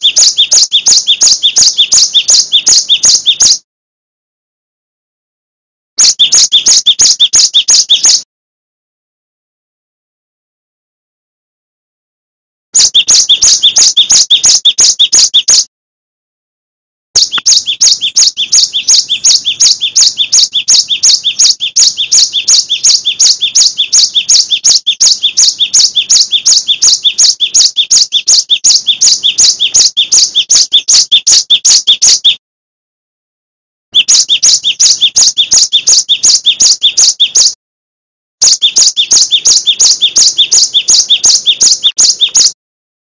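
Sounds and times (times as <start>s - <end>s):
bird singing high chirps: 0.0s - 3.6s, 6.0s - 8.2s, 12.8s - 15.7s, 17.2s - 32.4s, 33.9s - 37.6s, 38.4s - 42.6s.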